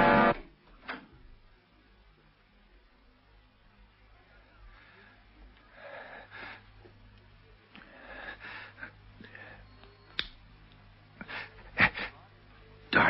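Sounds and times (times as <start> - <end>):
man breathing hard and wheezing: 5.7 - 6.7, 7.8 - 9.7.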